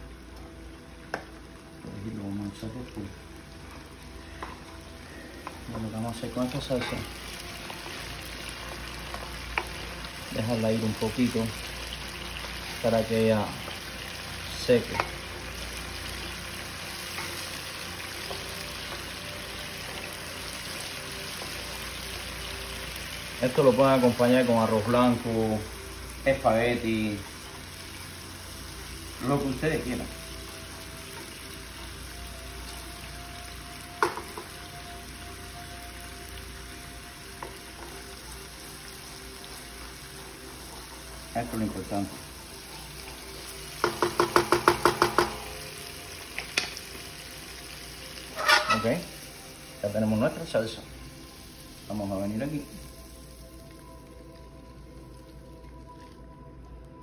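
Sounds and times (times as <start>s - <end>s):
sauce bubbling and sizzling in a pan: 0.0s - 57.0s
wooden spoon knocking on a pan: 34.0s - 34.5s, 43.8s - 45.5s.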